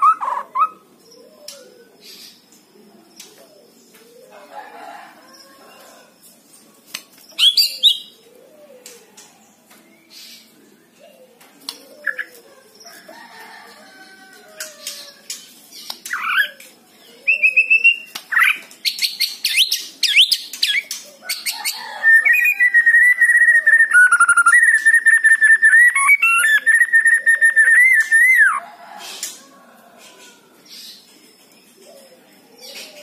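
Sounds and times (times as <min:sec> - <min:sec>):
bird singing whistled phrases: 0:17.3 - 0:18.1, 0:22.2 - 0:28.6.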